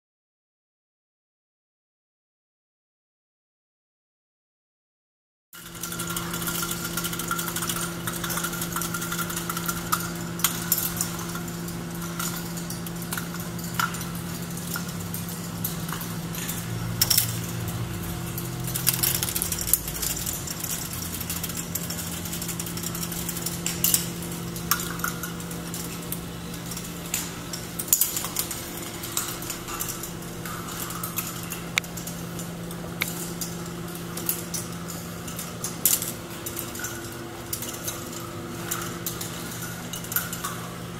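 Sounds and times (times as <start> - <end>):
plastic balls clattering through tracks: 5.6 - 32.1
motorized lift hum: 5.6 - 40.9.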